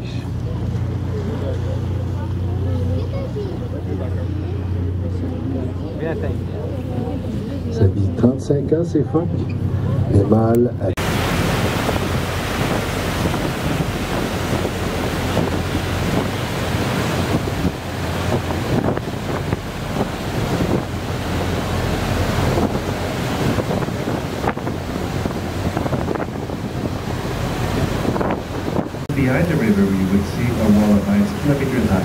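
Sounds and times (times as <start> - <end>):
boat engines droning: 0.0 - 32.0
water churning in boat wake: 0.0 - 32.0
wind on microphone: 11.0 - 32.0.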